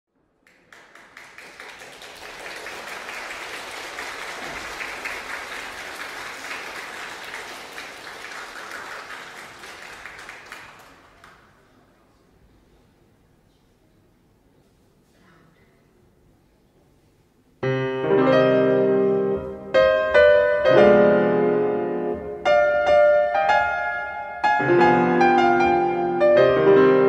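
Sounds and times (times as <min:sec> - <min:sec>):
audience applauding: 0:00.4 - 0:11.8.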